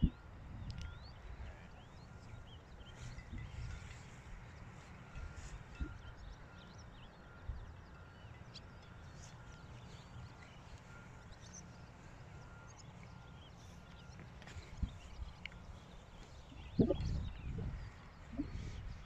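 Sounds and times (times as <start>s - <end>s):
wind rumbling on microphone: 0.0s - 6.4s, 14.6s - 19.0s
birds chirping faintly: 0.0s - 19.0s.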